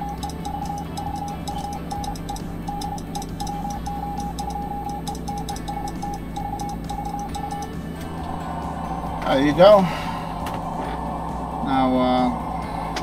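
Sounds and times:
morse code beeps: 0.0s - 7.9s
faint keying clicks: 0.0s - 8.1s
low steady hum: 0.0s - 13.0s.

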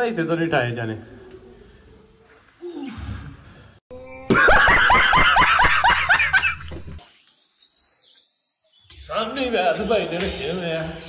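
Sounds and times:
man laughing loudly: 4.3s - 6.8s.

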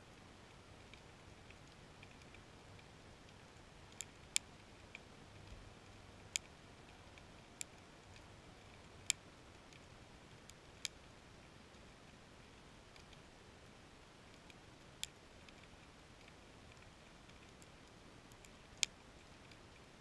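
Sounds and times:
faint steady hiss: 0.0s - 20.0s
sharp underwater clicks: 0.8s - 11.0s.

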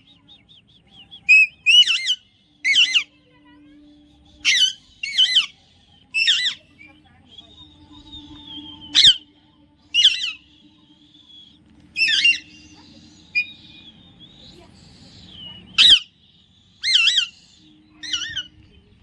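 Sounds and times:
parakeet squawking: 1.3s - 3.2s, 4.4s - 6.7s, 8.0s - 9.3s, 9.9s - 10.5s, 12.0s - 13.6s, 15.7s - 16.2s, 16.8s - 18.6s.

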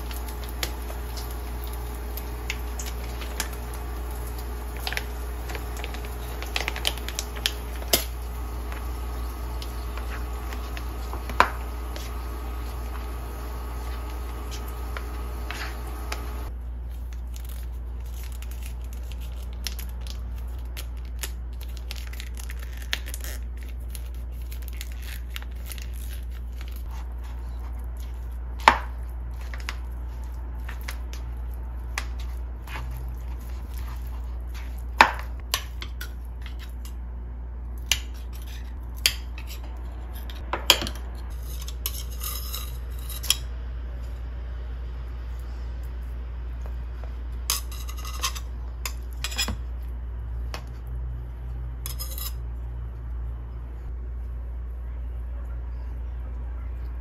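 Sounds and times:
steady low hum: 0.0s - 21.7s.

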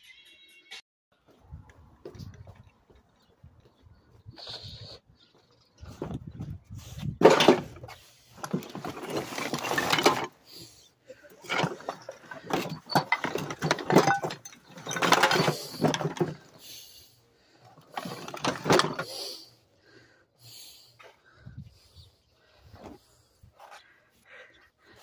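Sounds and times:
wheelbarrow debris rattling: 7.2s - 16.9s, 17.7s - 19.1s.

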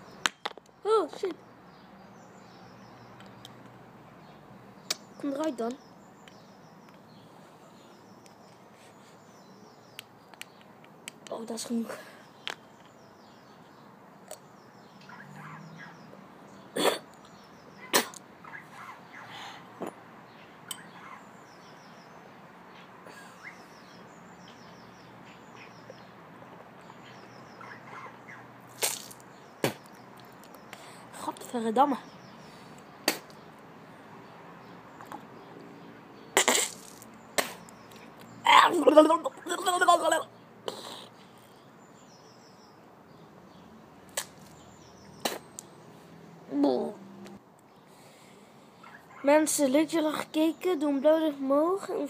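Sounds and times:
boy coughing bursts of breath: 16.8s - 17.1s.

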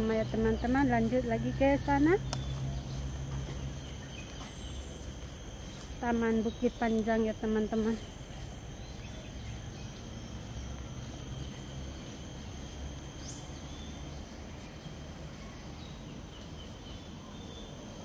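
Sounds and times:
high-pitched insect buzzing: 0.0s - 14.3s.

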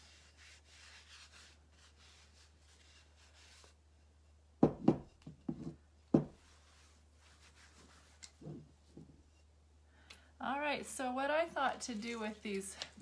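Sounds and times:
cloth rubbing pot surface: 0.0s - 4.5s, 5.2s - 9.6s
clay pot knocking on wooden board: 4.6s - 6.4s.

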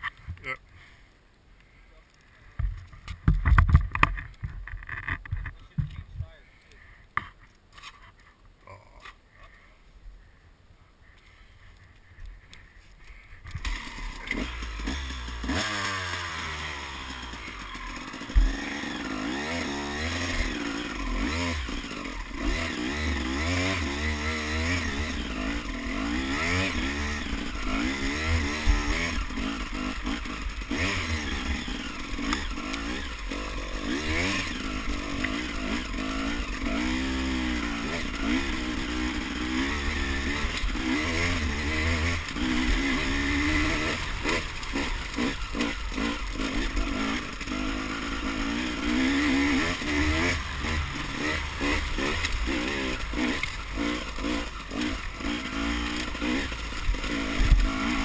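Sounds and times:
dirt bike engine revving: 13.5s - 58.0s.

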